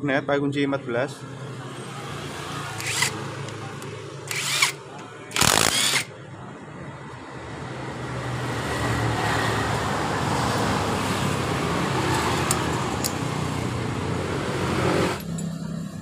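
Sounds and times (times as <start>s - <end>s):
motor vehicle rushing noise: 8.0s - 16.0s.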